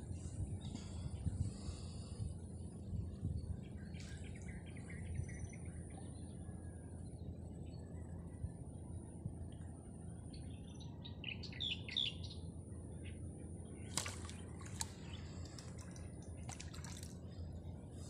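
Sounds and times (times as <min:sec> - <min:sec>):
steady low rumble: 0:00.0 - 0:18.0
small birds chirping: 0:10.3 - 0:18.0.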